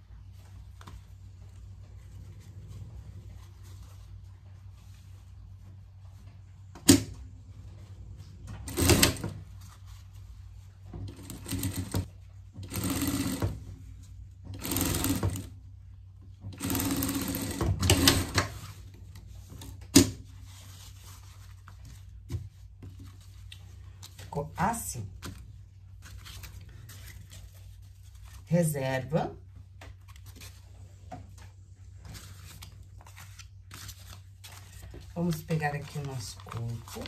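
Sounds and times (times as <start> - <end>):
sewing machine stitching fabric: 8.5 - 9.3, 11.0 - 13.7, 14.5 - 15.6, 16.5 - 18.6.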